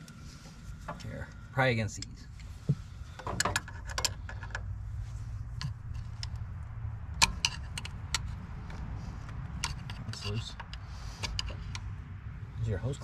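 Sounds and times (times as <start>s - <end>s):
steady low rumble: 0.0s - 13.0s
metal tools clinking on metal: 9.6s - 11.8s.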